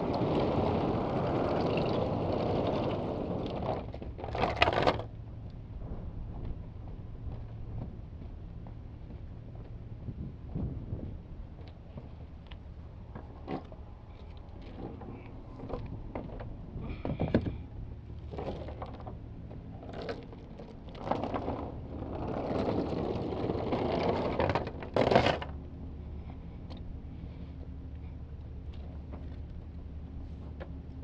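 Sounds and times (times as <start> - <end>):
chain dragging and scraping: 19.8 - 25.5.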